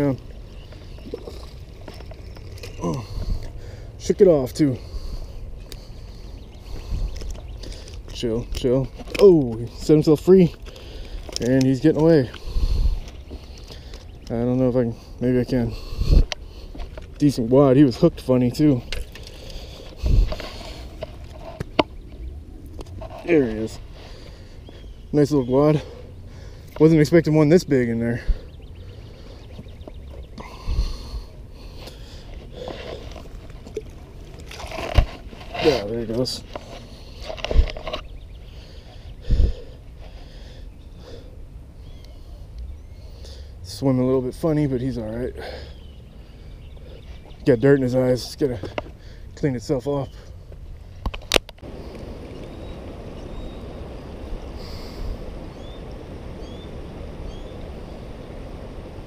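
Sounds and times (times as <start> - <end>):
wind rumble on microphone: 0.0 - 3.6, 4.5 - 10.6, 11.2 - 13.5, 14.1 - 24.0, 28.2 - 31.5, 36.3 - 39.8, 50.8 - 59.0
microphone handling noise: 15.8 - 17.2, 19.0 - 21.9
faint bird chirps: 37.8 - 43.5, 51.8 - 58.3
breaths through the nose: 38.5 - 41.4.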